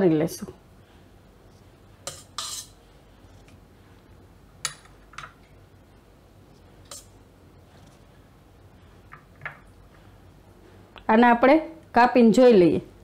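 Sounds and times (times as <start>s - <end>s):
metal spoon scraping glass bowl: 2.1s - 2.8s.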